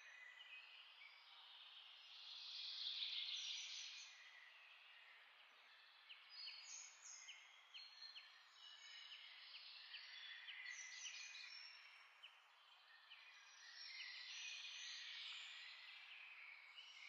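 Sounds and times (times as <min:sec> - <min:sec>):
faint bird chirping: 0:00.0 - 0:17.0.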